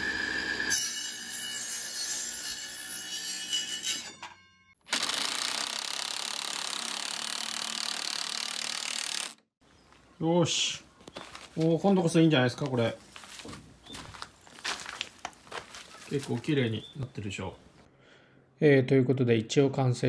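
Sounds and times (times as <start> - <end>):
circular saw cutting wood: 0.0 - 4.2, 4.8 - 9.4.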